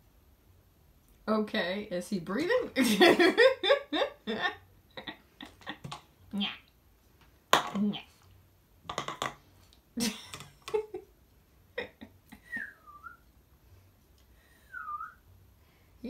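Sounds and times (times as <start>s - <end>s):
person whistling: 12.5s - 13.2s, 14.7s - 15.2s.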